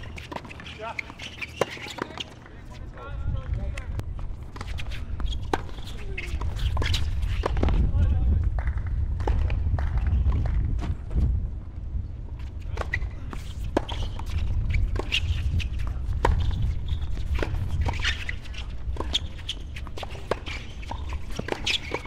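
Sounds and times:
tennis ball bouncing: 0:16.2 - 0:22.0
racket hitting tennis ball: 0:17.2 - 0:22.0.

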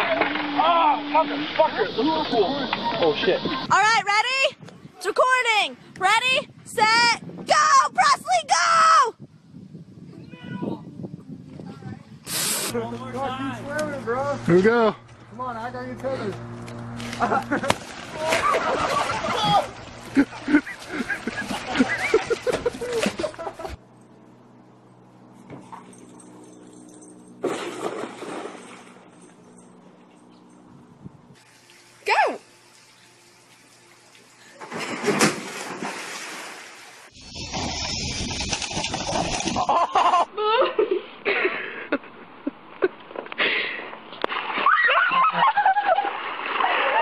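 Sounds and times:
churning water: 0:17.3 - 0:23.7, 0:27.4 - 0:29.3, 0:31.4 - 0:39.9
loud splash into water: 0:17.6 - 0:20.5, 0:34.6 - 0:39.7
high-pitched laughing and squealing: 0:44.6 - 0:45.9.

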